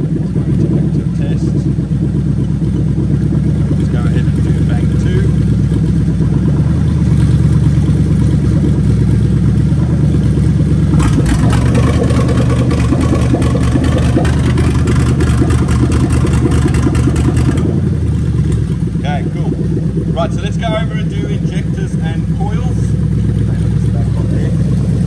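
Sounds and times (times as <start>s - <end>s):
car engine idling: 0.0s - 25.0s
fast bright ticking clatter: 11.0s - 17.7s.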